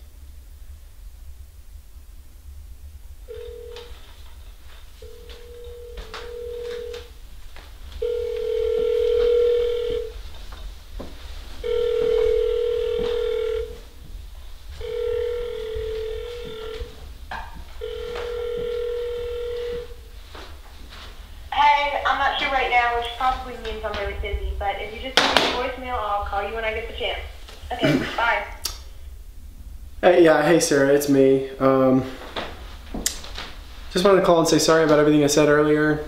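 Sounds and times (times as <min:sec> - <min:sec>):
telephone ringback tone: 0:03.3 - 0:04.2, 0:05.0 - 0:07.1, 0:08.0 - 0:10.2, 0:11.6 - 0:13.8, 0:14.8 - 0:17.0, 0:17.8 - 0:20.0.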